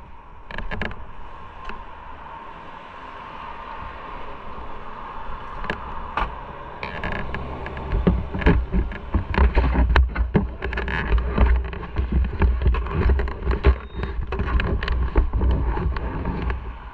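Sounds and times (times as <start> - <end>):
wind buffeting microphone: 0.0 - 16.9
camera handling knocks and rustles: 7.0 - 16.6.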